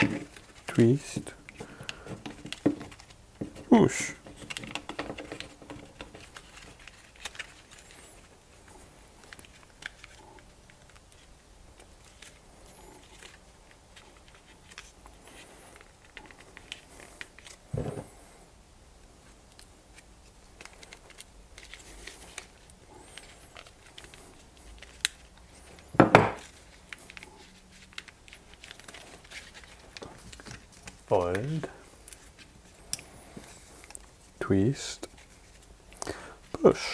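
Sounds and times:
bark strips crackling and rustling: 0.0s - 18.4s, 19.2s - 36.9s
metal tool knocking on wooden table: 26.0s - 26.4s.

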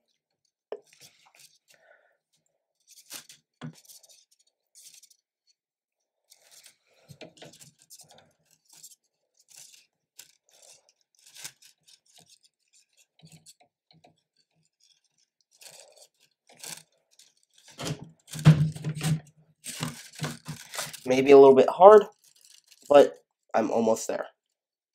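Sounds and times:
plastic filament rustling and clicking: 0.7s - 1.8s, 2.8s - 5.6s, 6.3s - 21.3s, 22.0s - 23.4s, 24.3s - 24.6s
knocking and rubbing: 17.6s - 21.1s.

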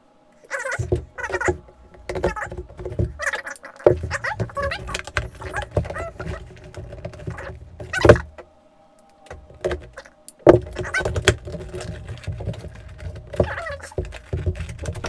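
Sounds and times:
sharp clicks and knocks: 0.7s - 8.4s, 9.2s - 15.0s
cardboard box rustling and scraping: 3.9s - 8.3s, 9.4s - 15.0s.

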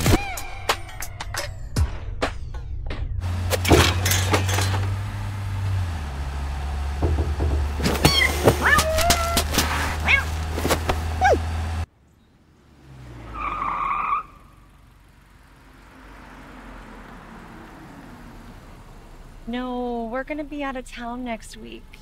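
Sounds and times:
van droning and knocking: 0.0s - 11.9s
faint street traffic: 3.2s - 22.0s
cat meowing and yowling: 8.1s - 9.4s.

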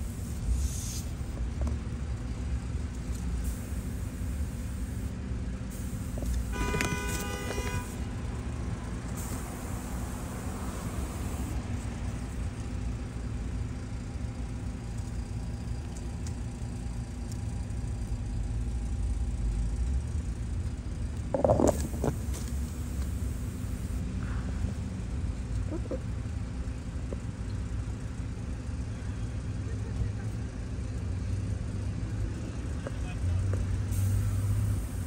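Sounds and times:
road traffic rumble: 0.0s - 35.0s
short pitched tone: 6.5s - 8.0s.

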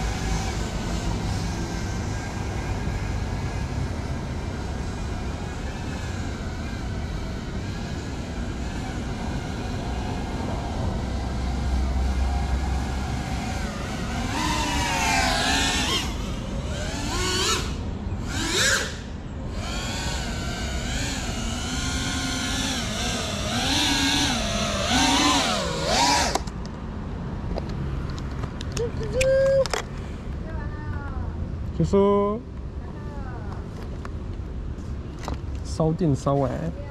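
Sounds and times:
drone motors whining: 0.0s - 26.6s.

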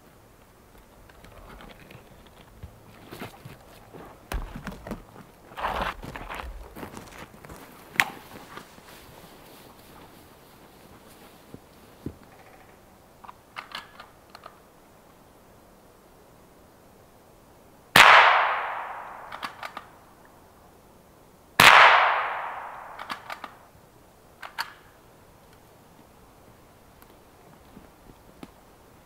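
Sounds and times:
gunshots ringing through forest: 18.0s - 19.9s, 21.6s - 23.6s
small sharp clicks: 19.2s - 19.9s, 22.9s - 23.6s, 24.4s - 24.8s.

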